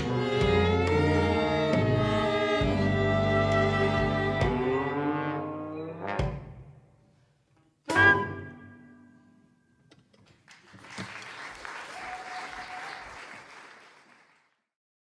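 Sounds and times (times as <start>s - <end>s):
audience applauding: 10.4s - 14.7s.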